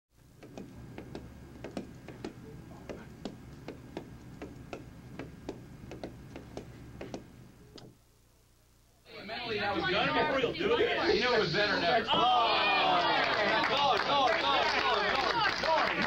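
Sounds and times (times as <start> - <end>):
steady low hum: 0.2 - 13.0
irregular sharp taps: 0.4 - 8.0.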